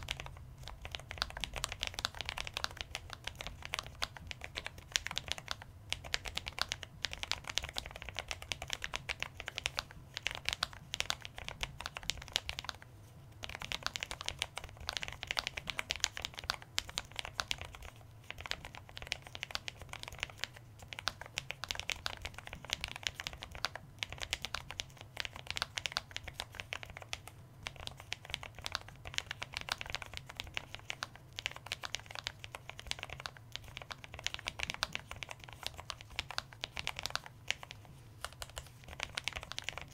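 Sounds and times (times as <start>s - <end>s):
fast typing on mechanical keyboard: 0.0s - 39.9s.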